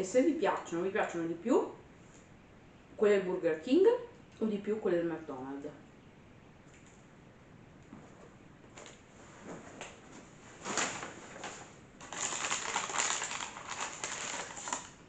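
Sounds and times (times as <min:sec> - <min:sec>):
paper bag rustling: 0:09.5 - 0:15.0.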